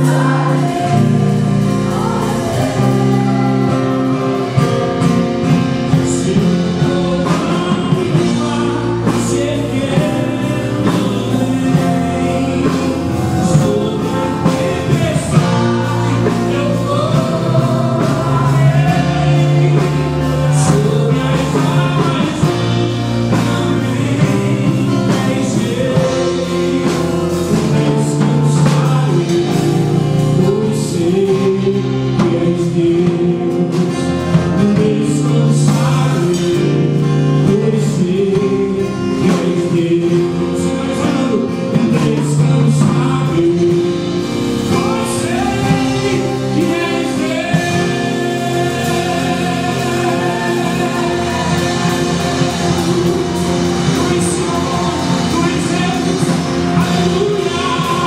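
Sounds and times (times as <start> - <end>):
drum kit: 0.0 - 58.0
electric guitar: 0.0 - 58.0
man singing: 0.0 - 58.0
acoustic guitar strumming: 39.0 - 58.0.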